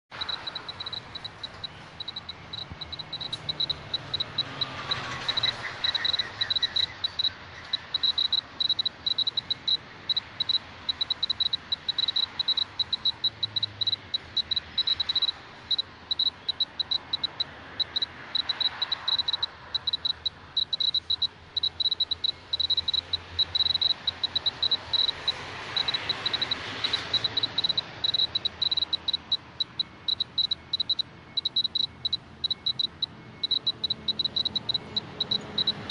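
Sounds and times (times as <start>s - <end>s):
dosimeter high-pitched beeps: 0.1s - 35.9s
passing traffic rushing: 0.1s - 35.9s.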